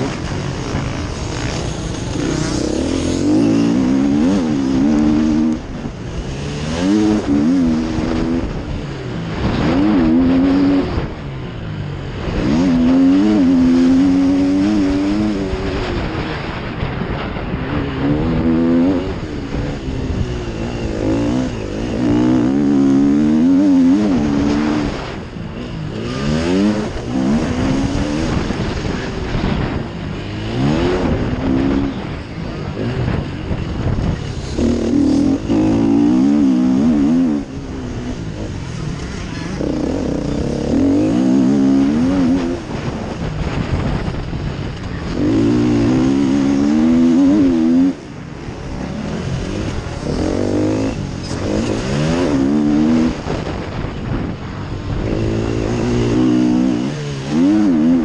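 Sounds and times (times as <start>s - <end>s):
motocross bike engine revving: 0.0s - 58.0s.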